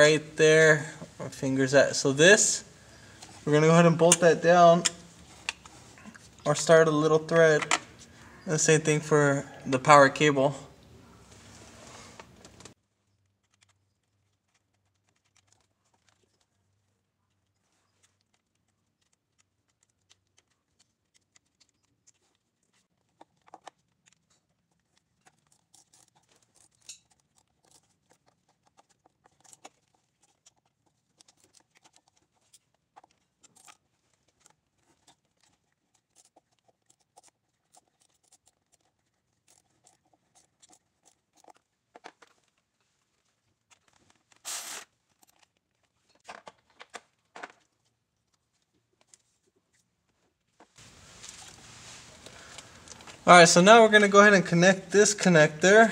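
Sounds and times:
gloved hands rustling: 11.2 - 55.9.

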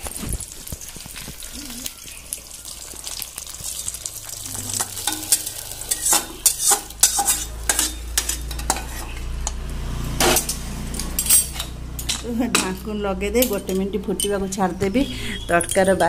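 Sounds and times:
hot oil sizzling: 0.0 - 12.0.

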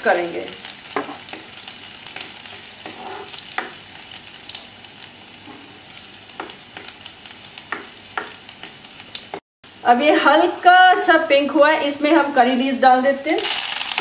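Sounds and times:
garlic sizzling in hot oil: 0.0 - 14.0
spatula scraping pan: 2.1 - 3.8, 5.3 - 5.8.

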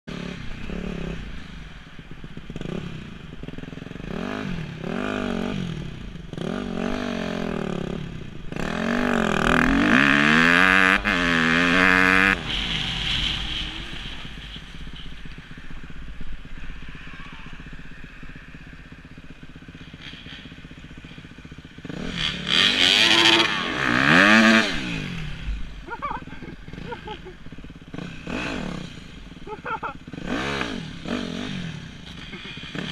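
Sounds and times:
dirt bike engine revving: 0.1 - 32.9.

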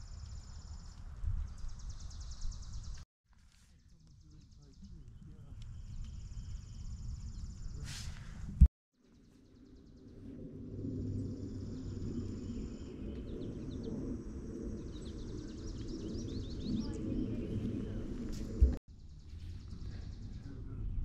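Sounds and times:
small birds chirping: 0.0 - 8.4, 11.0 - 21.0.

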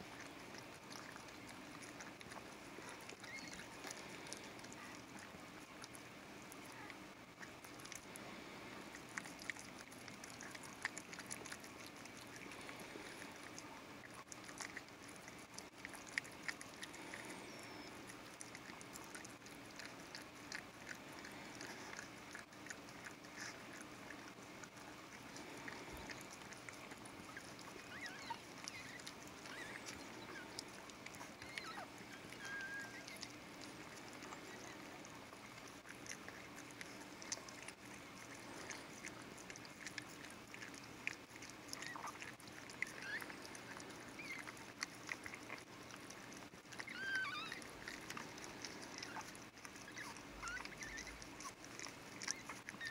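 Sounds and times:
dog licking puppy: 0.0 - 52.9
puppy squeaking: 2.8 - 5.0, 17.1 - 19.2, 27.3 - 33.4, 41.7 - 44.7, 46.7 - 52.9.

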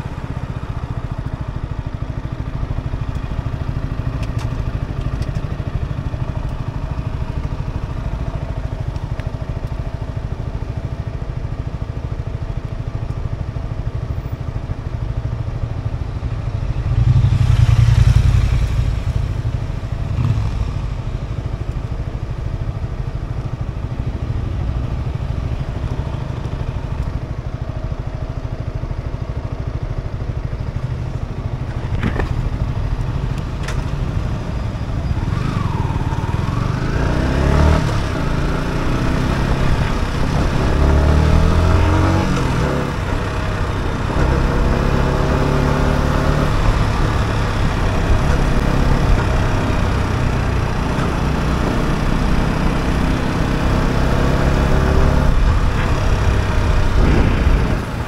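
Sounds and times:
motorcycle engine idling: 0.0 - 36.9
passing rush: 16.6 - 21.0, 55.1 - 58.0.

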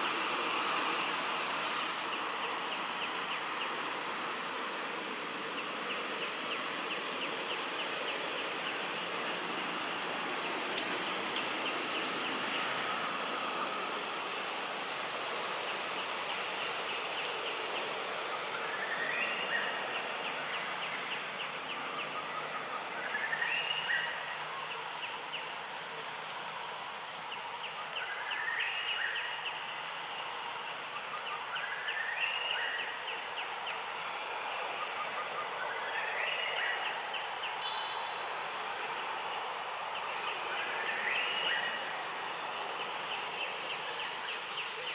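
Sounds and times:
insect drone: 0.0 - 44.9.

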